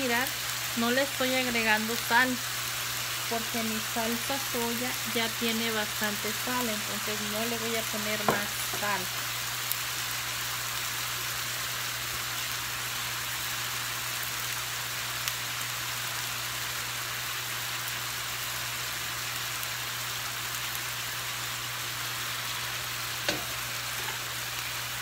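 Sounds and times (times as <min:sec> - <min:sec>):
chicken sizzling in hot oil: 0:00.0 - 0:25.0
frying pan knock: 0:08.2 - 0:08.8, 0:23.2 - 0:23.6.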